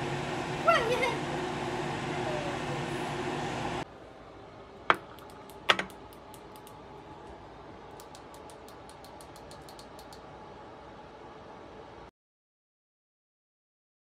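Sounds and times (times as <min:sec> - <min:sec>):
sharp clicks: 0:08.0 - 0:10.3.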